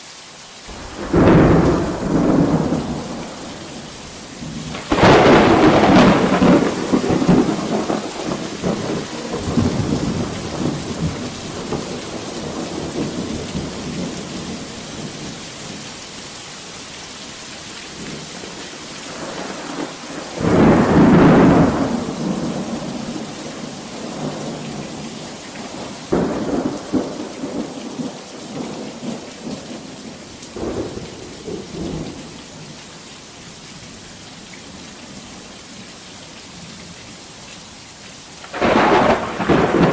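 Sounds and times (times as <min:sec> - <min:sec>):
heavy rain: 0:00.0 - 0:39.9
thunder rumbling: 0:00.7 - 0:15.8, 0:17.9 - 0:32.7, 0:38.4 - 0:39.9.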